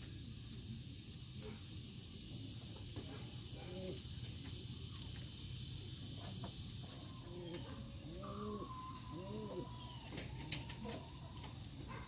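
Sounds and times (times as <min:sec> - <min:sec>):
steady high hiss: 0:00.0 - 0:12.0
pigeons cooing: 0:02.9 - 0:04.3, 0:06.1 - 0:12.0.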